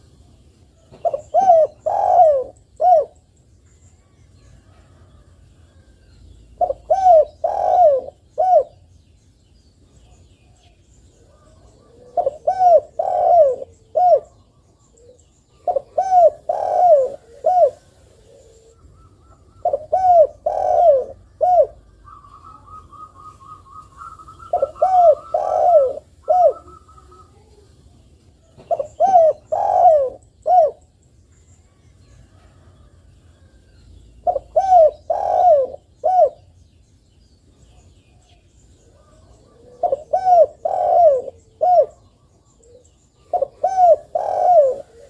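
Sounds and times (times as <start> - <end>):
dove cooing: 0.8 - 3.2, 6.5 - 8.9, 11.2 - 27.6, 28.4 - 30.9, 34.2 - 36.6, 38.9 - 45.0.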